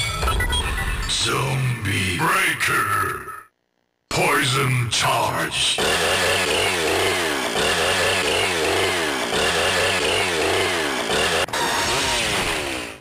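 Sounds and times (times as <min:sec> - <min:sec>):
chainsaw-like whirring sound effect: 0:05.8 - 0:13.0.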